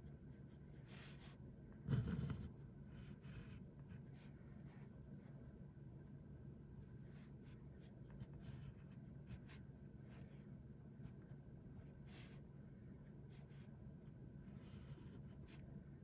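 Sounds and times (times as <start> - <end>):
low steady hum: 0.0 - 16.0
pen nib scratching on paper: 0.7 - 4.9.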